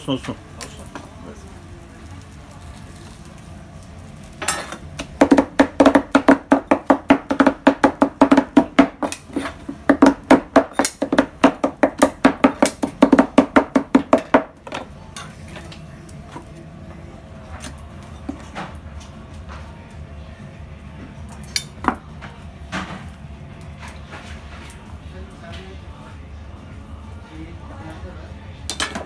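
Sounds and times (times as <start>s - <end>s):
knives chopping on a steel griddle: 4.4s - 16.5s, 21.3s - 23.1s, 28.7s - 29.0s.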